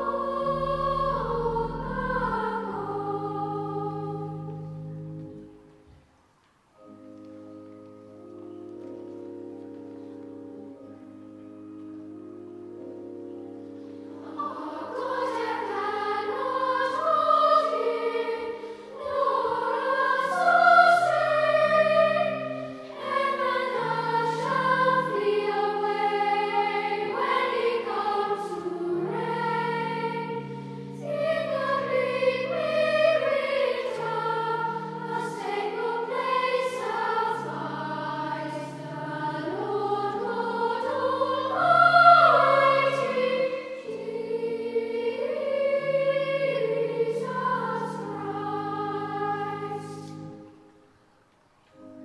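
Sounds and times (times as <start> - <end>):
children's choir singing: 0.0 - 5.6, 13.0 - 50.7
low accompaniment notes: 0.0 - 5.8.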